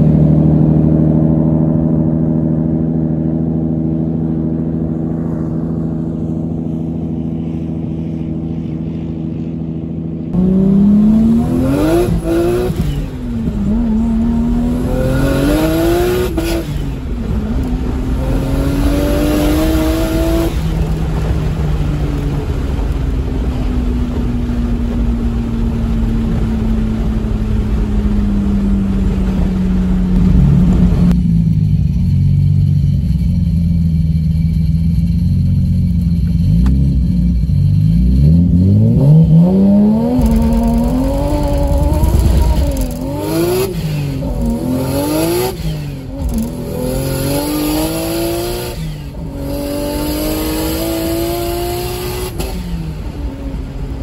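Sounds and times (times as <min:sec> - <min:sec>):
car engine accelerating: 0:00.0 - 0:54.0.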